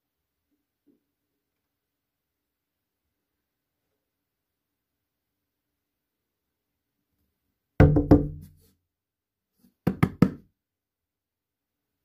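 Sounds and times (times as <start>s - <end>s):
hard hollow knocks: 7.8s - 8.5s.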